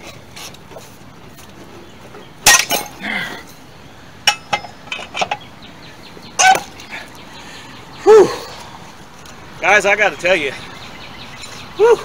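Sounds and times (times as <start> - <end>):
lug wrench clanging: 2.1 - 3.6, 4.2 - 5.6, 6.3 - 6.9.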